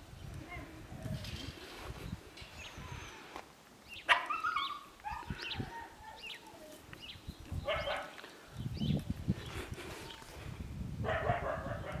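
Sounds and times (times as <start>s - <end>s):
puppies yipping and barking: 4.0s - 6.8s.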